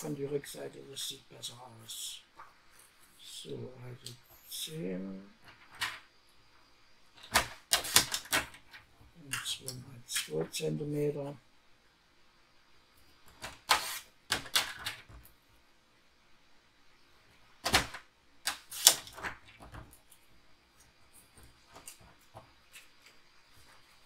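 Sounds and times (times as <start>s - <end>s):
paper being cut: 13.7s - 14.1s
paper handling clicks: 17.6s - 19.8s.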